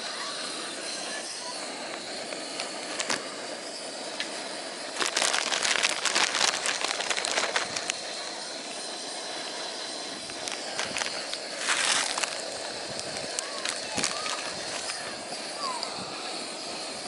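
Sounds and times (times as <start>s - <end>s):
gas stove hissing: 0.0s - 17.0s
noodles crackling and rustling: 2.6s - 3.3s, 4.9s - 8.4s, 10.2s - 15.2s.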